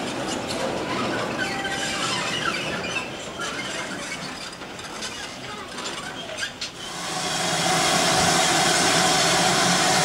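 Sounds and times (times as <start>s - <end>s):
wheel flange squeal: 0.5s - 5.4s.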